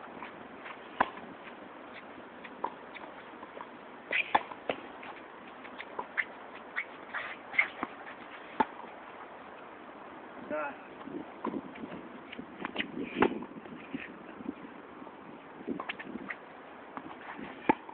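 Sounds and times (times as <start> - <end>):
sneakers squeaking on court: 1.9 - 8.9.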